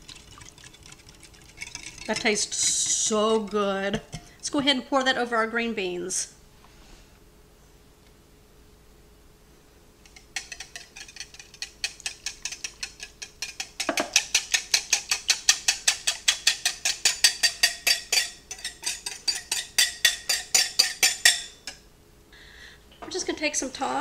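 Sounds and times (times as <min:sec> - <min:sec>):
wire whisk clinking on glass bowl: 0:01.6 - 0:02.2, 0:10.4 - 0:21.8.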